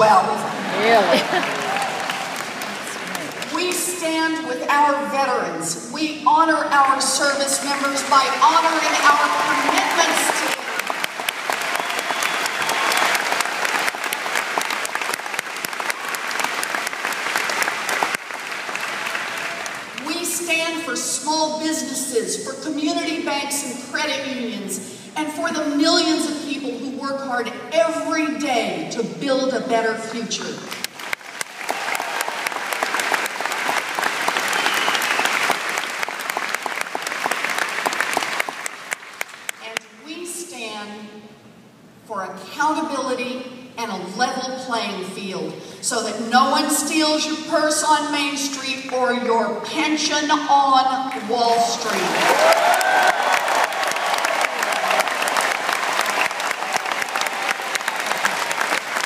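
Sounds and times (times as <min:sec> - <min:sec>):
crowd applauding: 0:00.0 - 0:03.6, 0:07.6 - 0:20.0, 0:30.7 - 0:39.6, 0:51.8 - 0:59.0.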